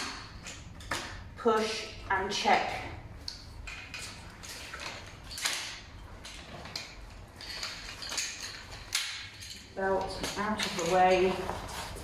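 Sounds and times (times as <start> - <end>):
wheelchair frame clicks and knocks: 3.3 - 12.0.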